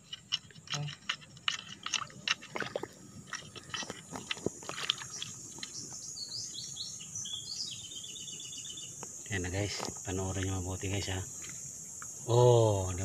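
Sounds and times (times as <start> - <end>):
wet clicks and squelches in mud: 0.0 - 6.0
small bird chirping: 3.4 - 12.3.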